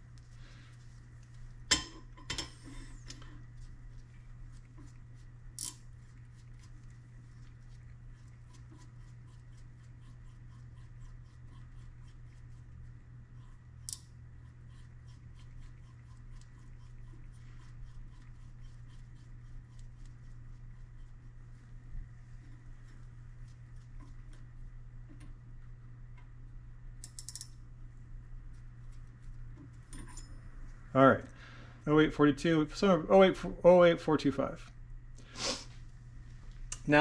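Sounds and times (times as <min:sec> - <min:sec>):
sharp metal clicks: 0:27.0 - 0:27.6.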